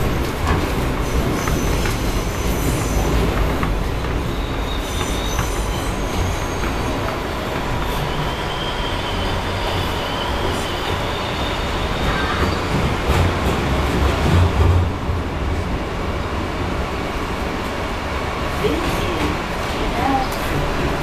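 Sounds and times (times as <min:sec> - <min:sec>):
subway car rumble: 0:00.0 - 0:21.0
wheel squeal: 0:04.0 - 0:12.9.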